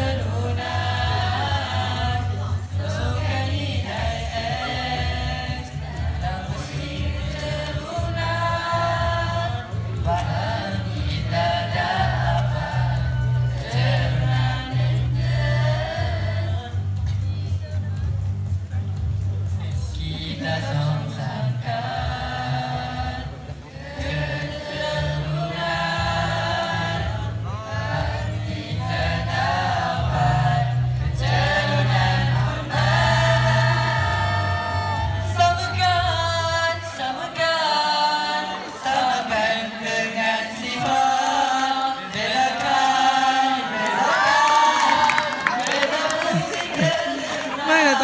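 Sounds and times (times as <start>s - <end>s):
group of voices singing: 0.0s - 18.4s, 19.1s - 48.0s
accompanying music: 0.0s - 48.0s.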